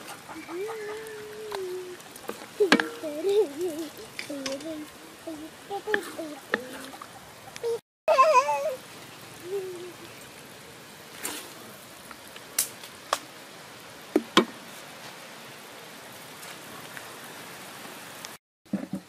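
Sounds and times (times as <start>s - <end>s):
steady low hiss: 0.0s - 18.9s
utensils knocking metal pan: 2.7s - 3.1s.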